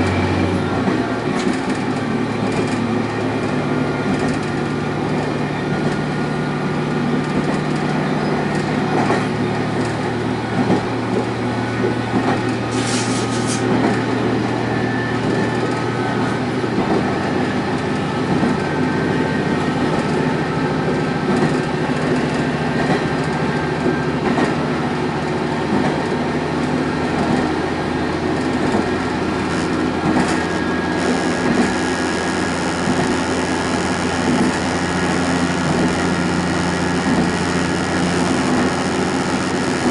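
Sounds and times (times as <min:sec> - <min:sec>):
diesel railcar engine and wheels: 0:00.0 - 0:39.9
short hiss: 0:12.7 - 0:13.6.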